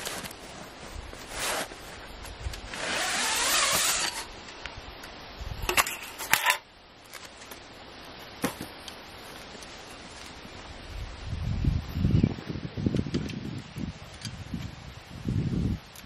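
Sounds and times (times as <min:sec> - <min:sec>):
metal frame clicks and clinks: 0:05.7 - 0:06.6.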